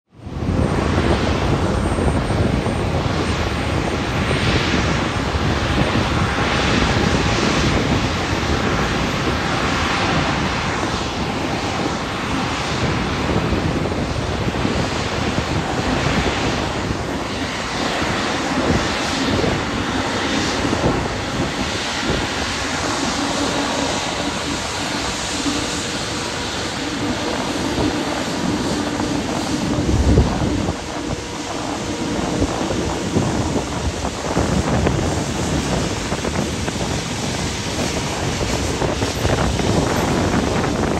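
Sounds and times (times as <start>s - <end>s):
jet engines taxiing: 0.1s - 40.9s.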